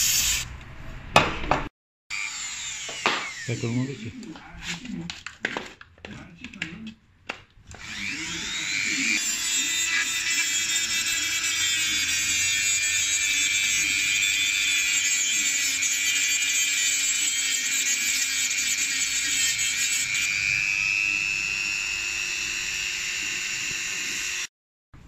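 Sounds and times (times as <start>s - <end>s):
rotary tool grinding metal: 2.1s - 4.8s, 7.7s - 24.5s.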